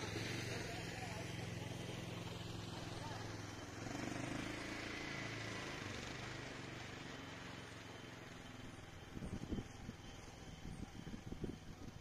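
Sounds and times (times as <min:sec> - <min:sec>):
distant engine droning: 0:00.0 - 0:12.0.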